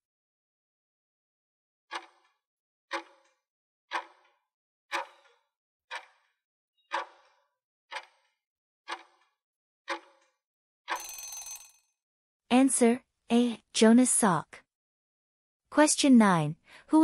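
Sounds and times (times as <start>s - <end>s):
clock ticking: 1.9s - 2.3s, 2.9s - 3.1s, 3.9s - 4.3s, 4.9s - 5.3s, 5.9s - 6.2s, 6.9s - 8.3s, 8.9s - 9.2s, 9.9s - 10.2s.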